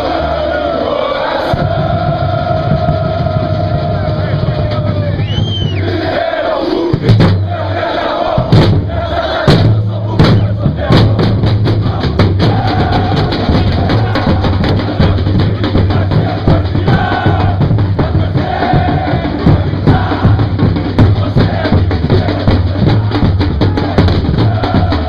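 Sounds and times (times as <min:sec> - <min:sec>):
drum beating: 0:00.0 - 0:25.0
football supporters chanting: 0:00.0 - 0:25.0.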